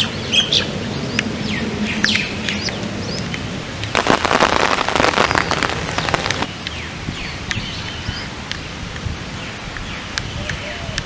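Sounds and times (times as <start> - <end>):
birds chirping: 0.0 - 10.9
rain pattering: 2.0 - 6.8.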